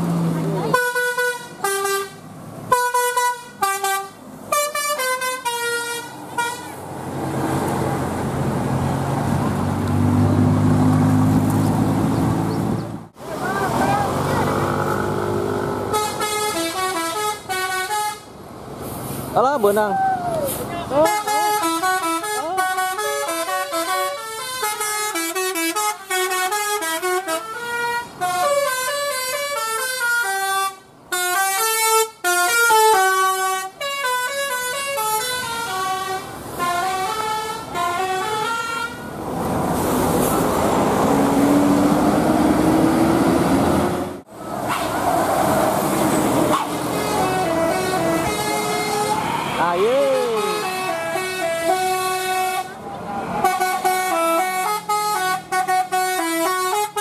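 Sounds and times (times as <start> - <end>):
bus engine droning: 0.0 - 57.0
bus air horn melody: 0.7 - 6.8, 15.9 - 18.3, 21.0 - 39.1, 44.6 - 45.0, 46.5 - 52.8, 53.4 - 57.0.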